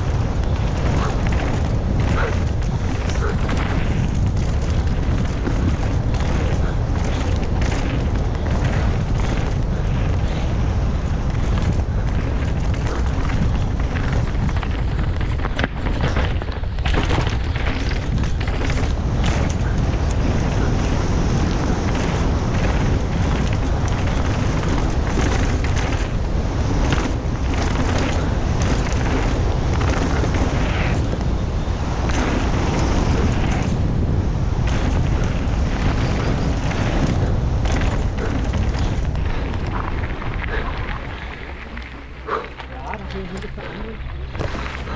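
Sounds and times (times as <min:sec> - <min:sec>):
mountain bike rattling over rough trail: 0:00.0 - 0:44.9
wind buffeting microphone: 0:00.0 - 0:44.9.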